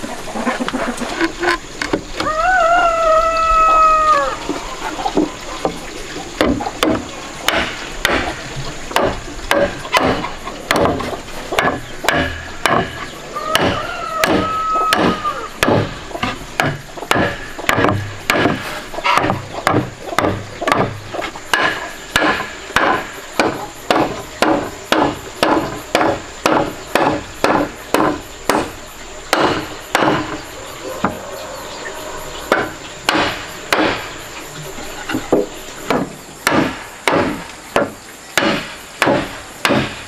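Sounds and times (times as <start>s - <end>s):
bird calling: 0.0s - 22.3s, 22.9s - 38.4s
wood knocking on wood: 6.4s - 30.4s, 35.1s - 40.0s.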